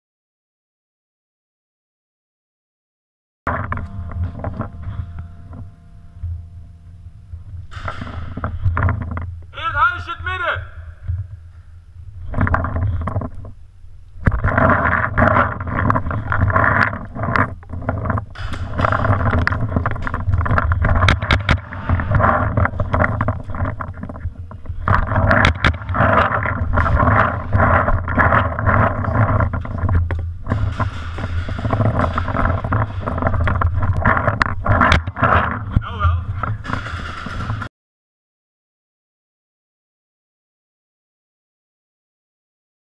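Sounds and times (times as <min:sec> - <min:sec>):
sharp clicks and cracks: 0:11.1 - 0:37.7.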